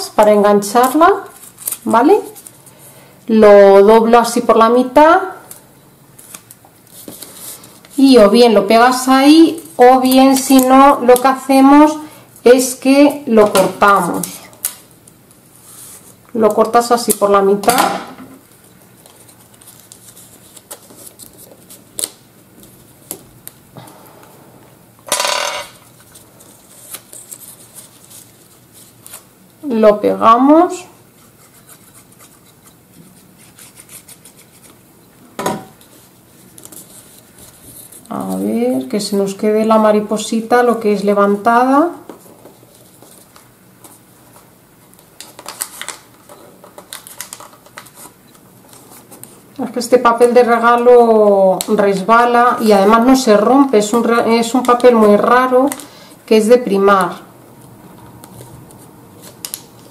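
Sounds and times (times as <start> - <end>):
paper rustling: 0.8 - 2.8, 5.5 - 8.1, 13.5 - 23.6, 25.8 - 29.3, 31.1 - 34.8, 35.8 - 38.6, 42.1 - 49.5, 58.2 - 59.9.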